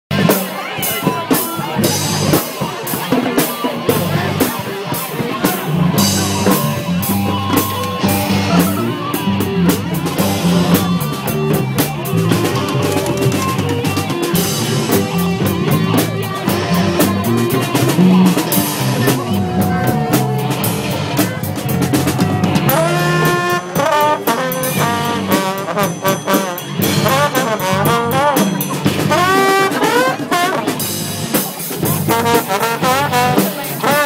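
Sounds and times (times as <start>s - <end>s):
drum kit steady beat: 0.1s - 34.0s
horns and woodwinds: 0.2s - 34.0s
low bass line: 5.6s - 23.9s.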